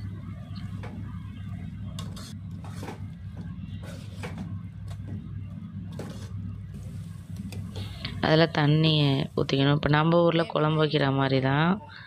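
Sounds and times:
steady low hum: 0.0 - 12.0
ladle scraping metal pot: 1.9 - 3.1, 5.9 - 7.0.

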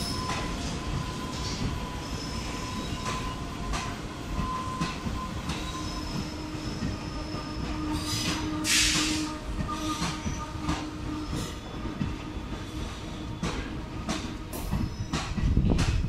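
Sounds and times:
train wheels rumbling on rails: 0.0 - 16.0
short loud hiss: 8.6 - 9.2.

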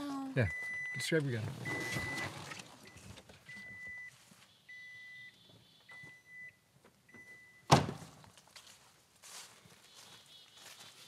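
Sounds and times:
door warning chime beeping: 0.4 - 7.7
car door slamming: 7.7 - 8.1.

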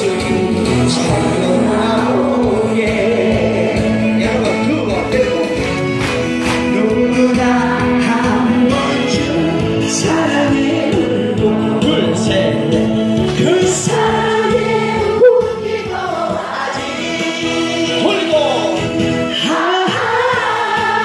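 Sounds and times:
instrumental accompaniment: 0.0 - 21.0
women singing in unison: 13.8 - 18.0, 19.4 - 21.0.

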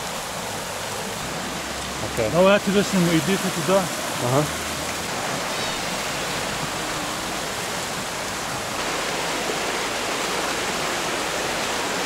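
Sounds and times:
stream rushing: 0.0 - 12.0.

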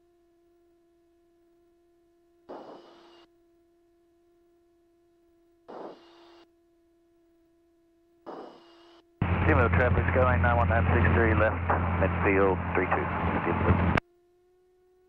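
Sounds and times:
short bursts of radio hiss: 2.5 - 3.3, 5.7 - 6.4, 8.3 - 9.0.

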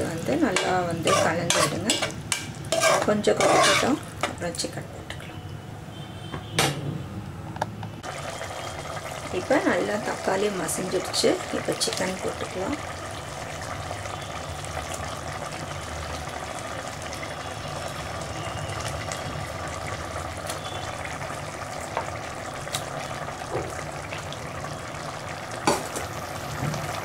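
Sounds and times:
gravy sizzling in a pot: 0.0 - 4.8, 8.0 - 27.0.

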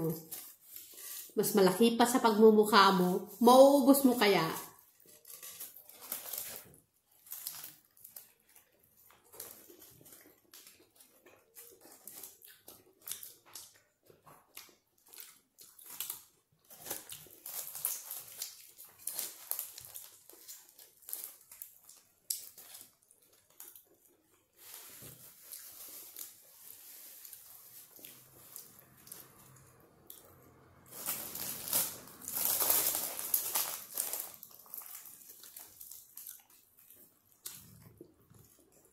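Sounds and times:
person chewing with wet smacks: 8.1 - 19.0, 34.7 - 38.9.

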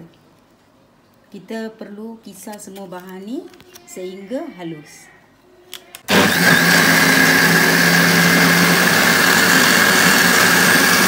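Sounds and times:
electric blender running: 6.1 - 11.0.

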